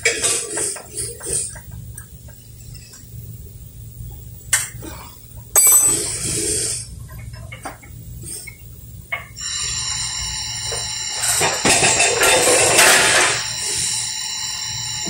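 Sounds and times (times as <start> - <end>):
loud hissing burst: 9.4 - 15.0.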